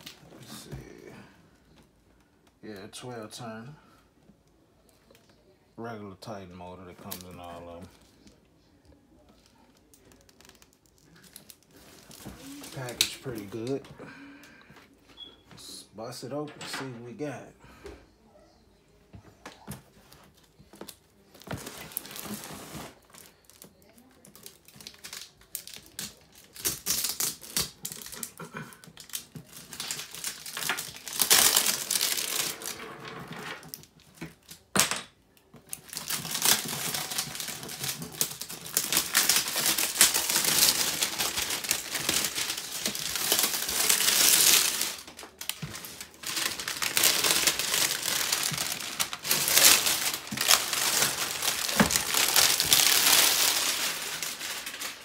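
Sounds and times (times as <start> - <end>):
cardboard and tape tearing: 21.4 - 23.7, 24.4 - 32.9, 35.7 - 55.0.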